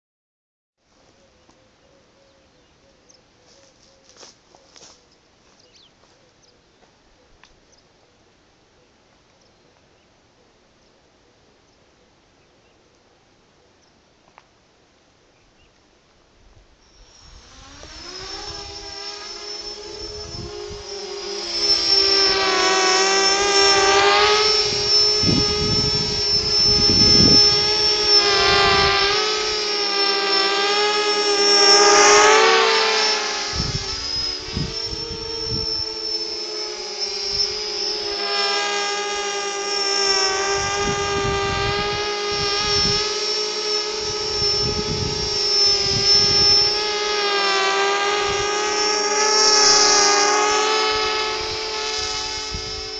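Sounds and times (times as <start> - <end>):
drone motors buzzing whine: 16.7 - 52.9.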